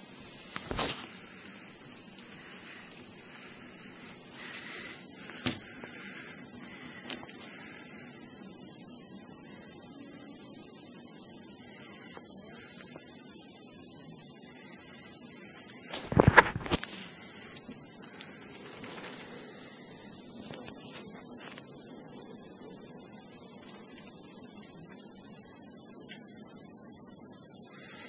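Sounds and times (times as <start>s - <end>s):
steady high hiss: 0.0s - 28.0s.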